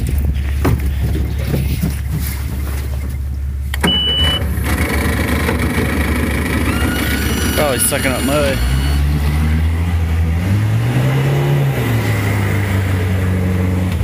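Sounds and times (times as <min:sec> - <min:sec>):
outboard engine humming: 0:00.0 - 0:10.3
short high beep: 0:03.8 - 0:04.4, 0:06.8 - 0:09.1.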